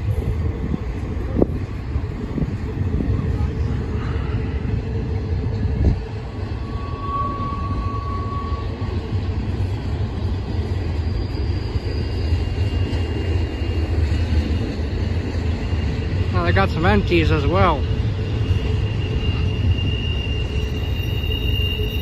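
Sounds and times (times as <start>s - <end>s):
train wheels rumbling on rail: 0.0s - 22.0s
faint high squeal: 6.3s - 13.5s, 15.5s - 22.0s.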